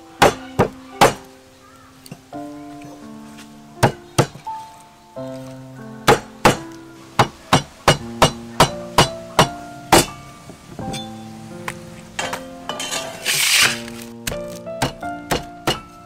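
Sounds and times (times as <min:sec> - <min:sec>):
instrumental background music: 0:00.0 - 0:16.0
cleaver chopping on wooden block: 0:00.2 - 0:01.3, 0:03.8 - 0:04.4, 0:06.1 - 0:06.6, 0:14.2 - 0:15.9.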